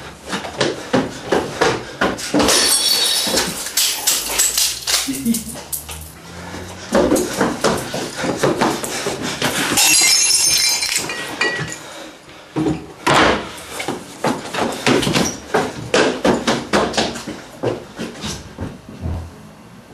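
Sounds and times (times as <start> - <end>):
footsteps on tile floor: 0.0 - 9.8, 12.5 - 19.3
glass clinking: 2.5 - 6.0, 9.8 - 11.8.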